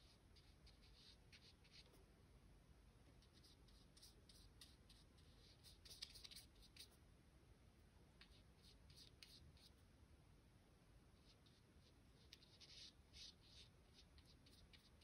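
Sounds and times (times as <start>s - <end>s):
paintbrush scratching on paper: 0.0s - 2.0s, 3.1s - 7.0s, 8.2s - 9.8s, 11.2s - 15.0s.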